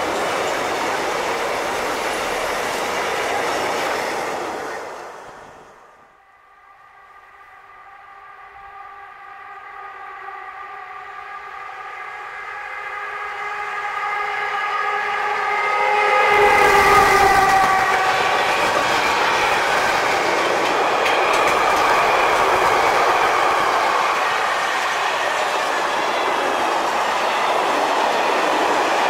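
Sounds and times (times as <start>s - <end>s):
freight train wheels rumbling: 0.0s - 6.2s, 7.9s - 29.0s
locomotive horn: 6.2s - 20.2s.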